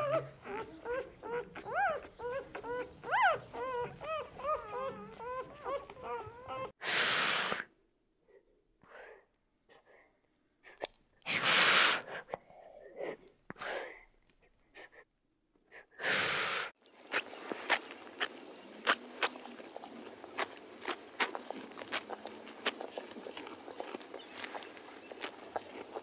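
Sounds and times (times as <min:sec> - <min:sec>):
monitor lizard hissing: 0:06.8 - 0:07.7, 0:11.3 - 0:12.3, 0:16.0 - 0:16.8.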